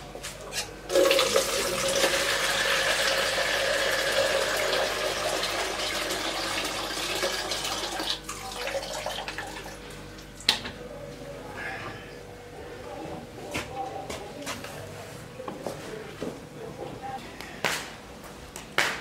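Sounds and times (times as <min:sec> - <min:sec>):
tap water running into plastic bowl: 0:00.9 - 0:09.7.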